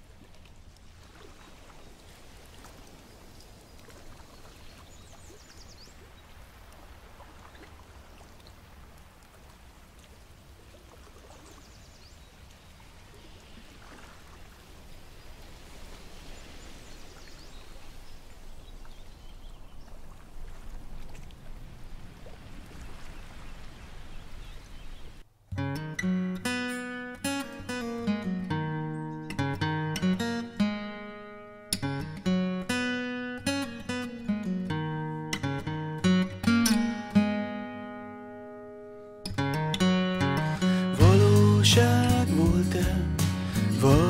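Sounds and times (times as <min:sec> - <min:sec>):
small waves lapping: 0:00.0 - 0:25.3.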